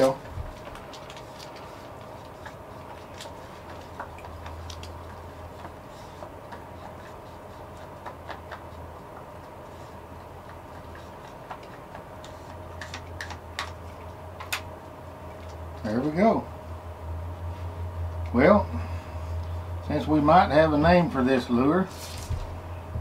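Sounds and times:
steady low hum: 0:00.0 - 0:23.0
stir stick scraping cup: 0:00.9 - 0:14.2.

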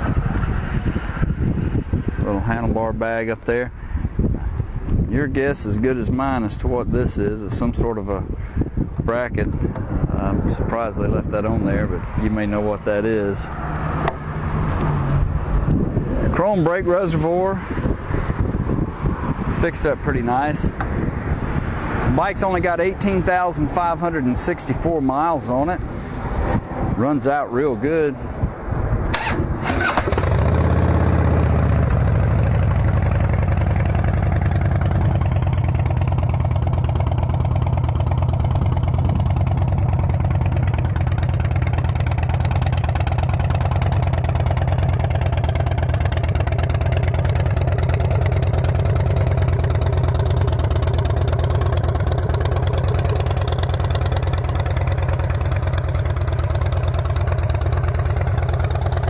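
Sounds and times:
motorcycle engine starting and idling: 0:29.0 - 0:59.0.

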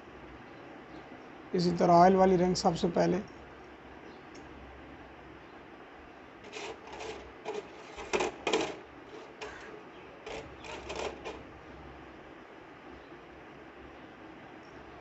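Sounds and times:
metallic scrapes and clicks: 0:06.4 - 0:11.4.

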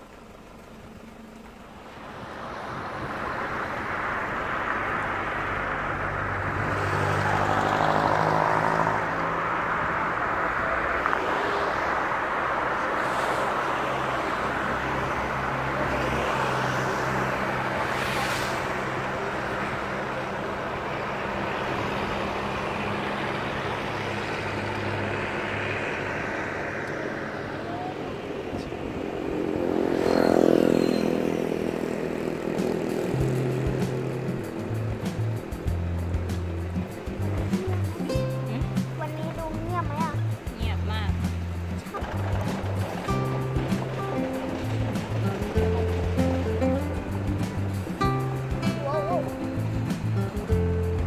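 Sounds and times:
road and wind noise: 0:00.0 - 0:51.0
vehicle engine running: 0:00.0 - 0:51.0
brief hissing: 0:17.8 - 0:18.9.

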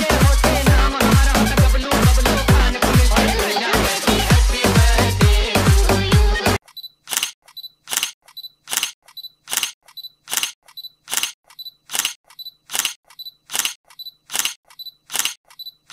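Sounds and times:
camera shutter firing: 0:07.9 - 0:08.1, 0:08.7 - 0:08.9, 0:09.5 - 0:09.7, 0:10.3 - 0:10.5, 0:11.1 - 0:15.4.

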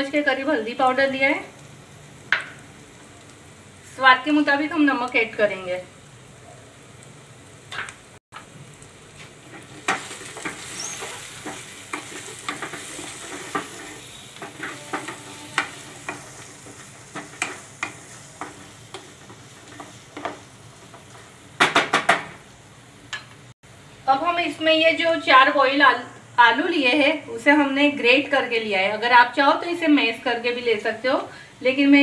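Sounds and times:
frying sizzle: 0:00.0 - 0:32.0
spatula scraping a pan: 0:09.5 - 0:20.4.

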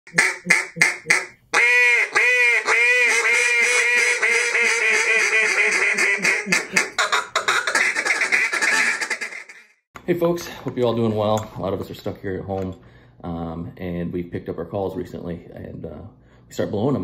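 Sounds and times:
duck call quacks: 0:00.1 - 0:09.8.

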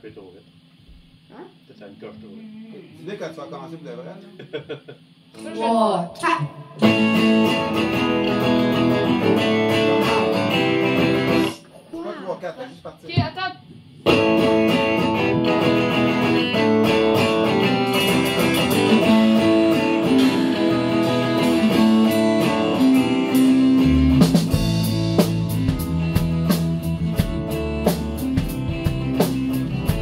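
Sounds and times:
bass: 0:05.3 - 0:11.6, 0:14.0 - 0:30.0
electric guitar strumming chords: 0:05.4 - 0:11.6, 0:14.0 - 0:30.0
drum beat: 0:06.8 - 0:11.6, 0:13.1 - 0:30.0.

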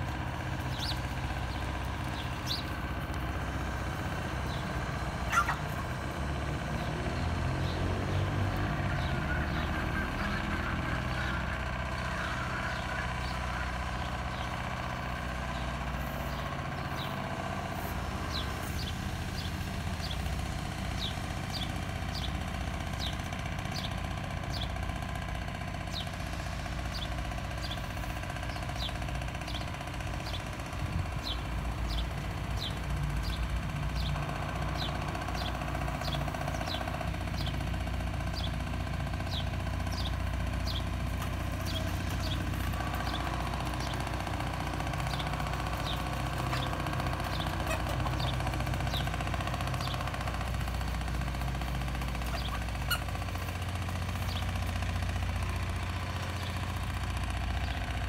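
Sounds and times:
low engine hum: 0:00.0 - 0:58.0
small bird chirping: 0:04.4 - 0:05.8, 0:39.2 - 0:54.6.

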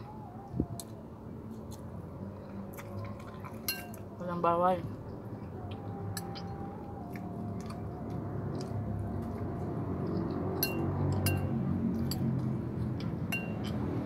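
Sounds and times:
low background hum: 0:00.0 - 0:14.0
metal spoon clinking on ceramic bowl: 0:03.7 - 0:04.0, 0:13.3 - 0:13.6.

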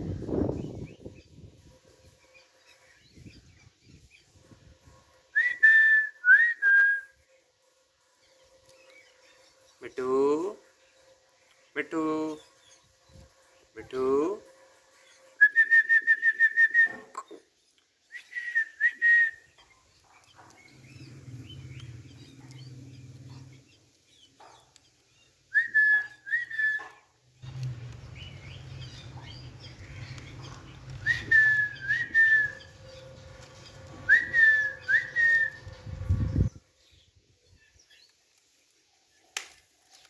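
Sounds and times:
high whistled notes: 0:05.3 - 0:07.2, 0:15.0 - 0:17.1, 0:25.5 - 0:26.9, 0:30.9 - 0:36.5.

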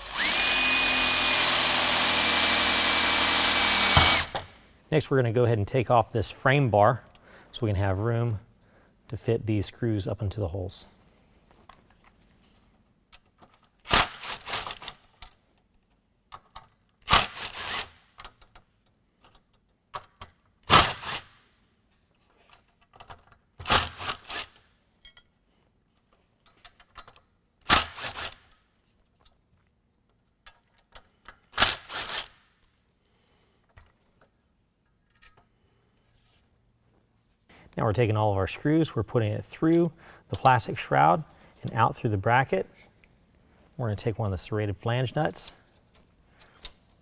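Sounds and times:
cordless drill backing out screws: 0:00.0 - 0:04.5.

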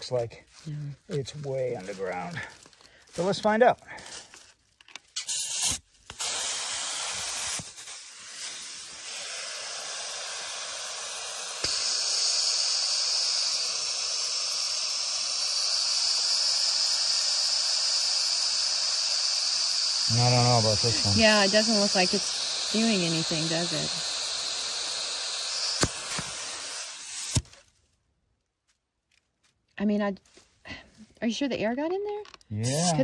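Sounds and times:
air hissing into tire valve: 0:05.0 - 0:27.6, 0:32.6 - 0:33.0
air chuck clicks: 0:11.4 - 0:12.5, 0:20.7 - 0:27.5.

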